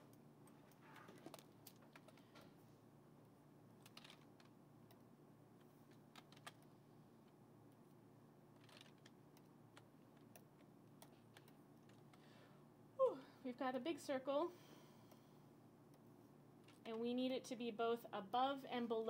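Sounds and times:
steady low hum: 0.0 - 19.0
keyboard and mouse clicks: 5.9 - 6.7, 8.6 - 12.2.

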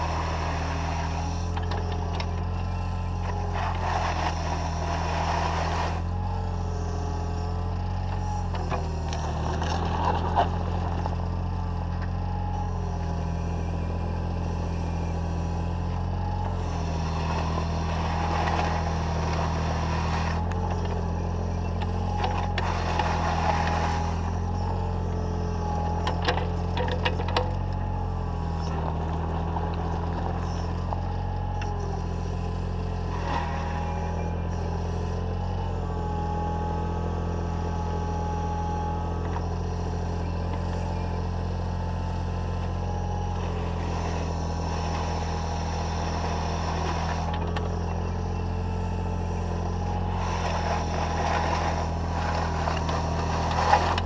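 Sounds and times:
mini digger hydraulics whining: 0.0 - 54.0
bucket scraping gravel: 50.4 - 54.0.

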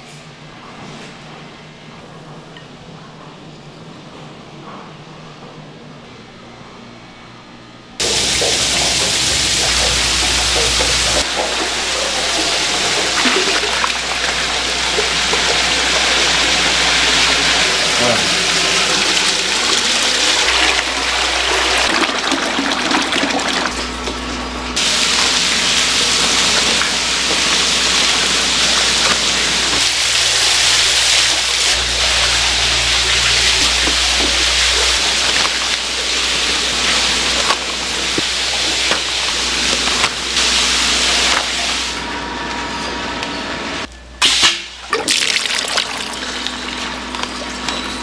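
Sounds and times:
steady low hum: 23.3 - 44.2
rushing splashing water: 24.8 - 41.9.

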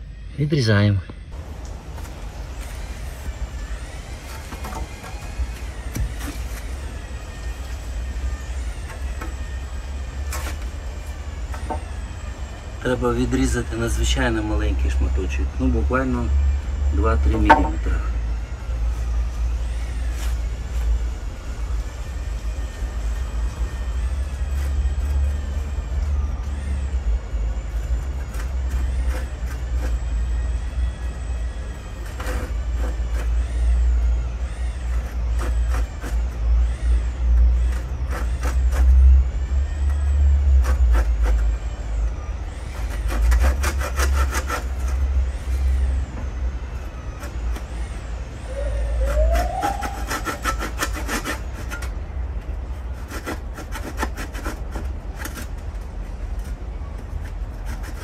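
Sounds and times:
steady low rumble: 0.0 - 35.4
hand saw cutting wood: 4.2 - 12.0, 27.9 - 30.3, 31.9 - 33.4, 34.8 - 36.4, 37.4 - 41.5, 42.6 - 45.1, 48.9 - 52.0, 52.8 - 55.6, 57.2 - 58.0.

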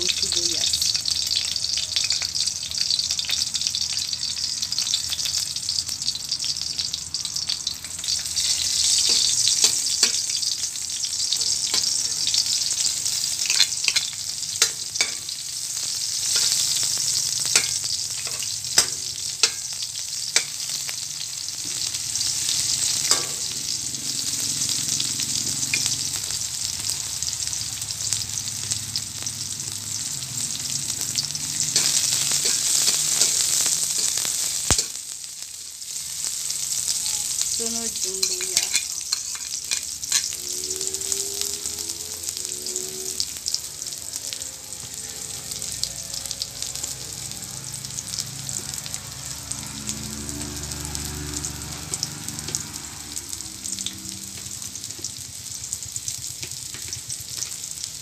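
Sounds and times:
garlic sizzling in oil: 0.0 - 58.0
spoon scraping a wok: 8.0 - 20.9, 31.5 - 35.0, 36.8 - 40.4.

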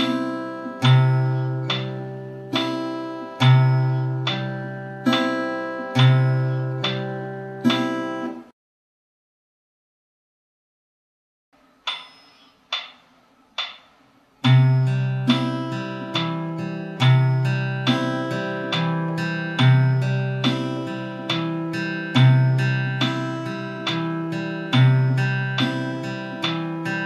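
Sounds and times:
count-in clicks: 0.0 - 8.1, 11.8 - 27.0
fingerpicked acoustic guitar: 0.0 - 8.5, 14.4 - 27.0.

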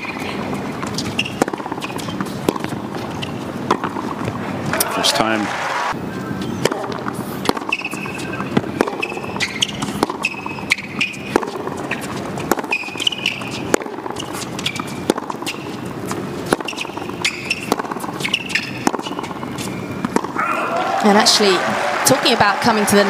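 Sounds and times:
ball bouncing: 0.0 - 4.8, 6.6 - 20.4
racket hitting tennis ball: 0.0 - 5.0, 6.6 - 20.6
shoes squeaking on court: 0.0 - 5.1, 6.1 - 20.6
crowd hum: 2.4 - 8.8.

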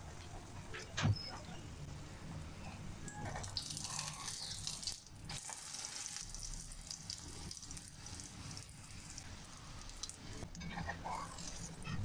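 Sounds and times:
omelette sizzling in oil: 3.3 - 12.0.

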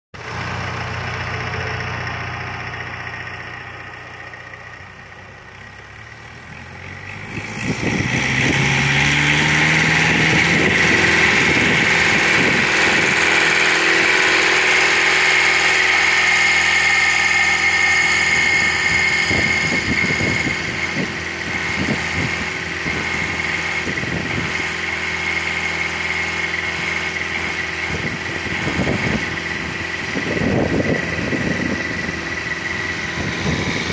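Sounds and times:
trencher engine revving: 0.2 - 33.9
high machine whine: 7.4 - 33.9.

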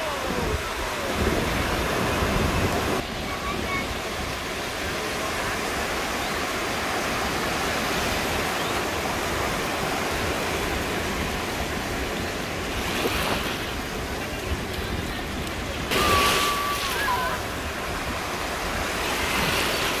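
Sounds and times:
small ocean waves breaking: 0.0 - 20.0.

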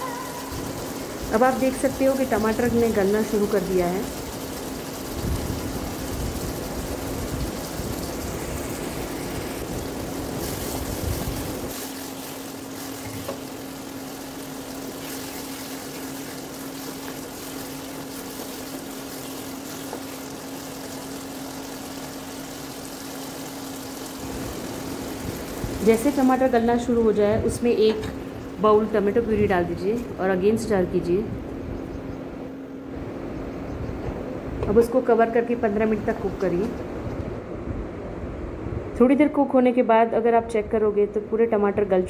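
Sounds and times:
tomatoes simmering and bubbling: 0.0 - 29.8
steady low hum: 0.0 - 42.0.

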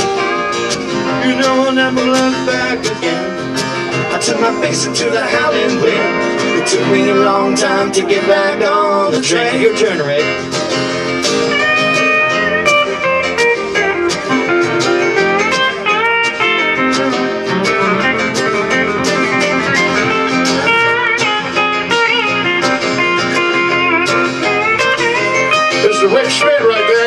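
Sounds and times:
country band instrumental: 0.0 - 27.0
pedal steel guitar sliding notes: 0.0 - 27.0.

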